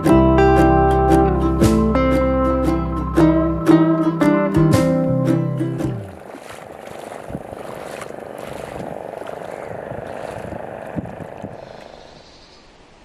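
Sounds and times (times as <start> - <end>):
boat motor buzzing drone: 6.0 - 12.1.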